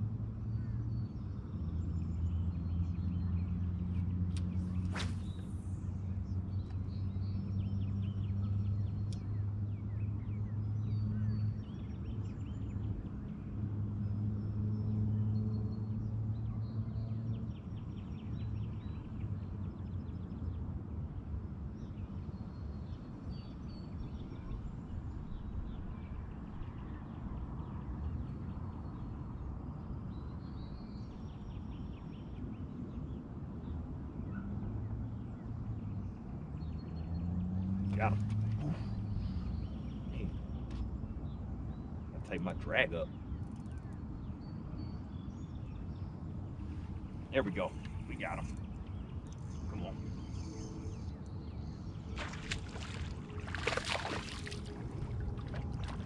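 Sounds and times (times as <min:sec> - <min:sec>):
small birds chirping: 0:35.2 - 0:56.0
boat motor humming: 0:46.8 - 0:56.0.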